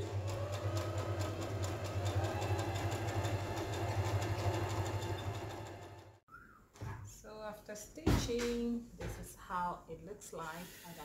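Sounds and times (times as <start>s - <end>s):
sewing machine motor humming: 0.0s - 6.2s.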